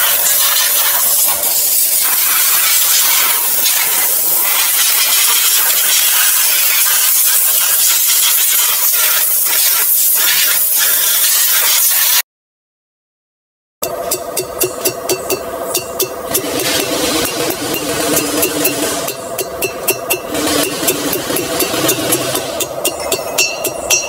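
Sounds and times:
spray gun hissing: 0:00.0 - 0:12.2.

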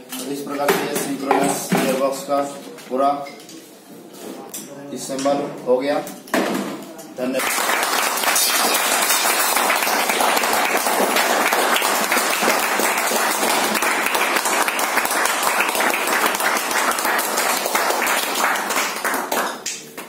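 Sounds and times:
crowd applauding: 0:07.4 - 0:19.8.

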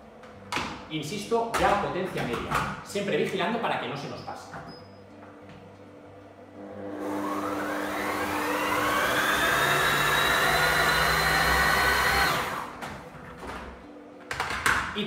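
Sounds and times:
blender motor whining: 0:06.6 - 0:12.8.

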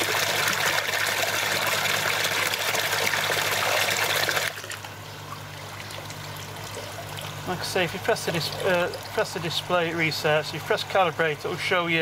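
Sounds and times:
water gushing and splashing: 0:00.0 - 0:09.6
pump low hum: 0:00.0 - 0:12.0.

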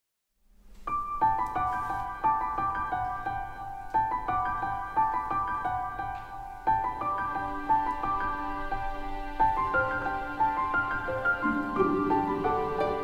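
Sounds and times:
high piano notes: 0:09.6 - 0:13.0.

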